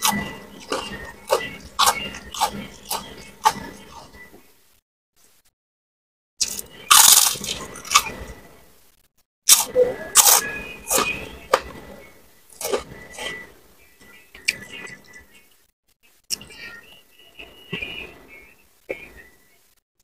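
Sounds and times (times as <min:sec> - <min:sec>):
crunching crisp cracker: 0:00.0 - 0:04.1, 0:06.4 - 0:08.2, 0:09.5 - 0:11.6.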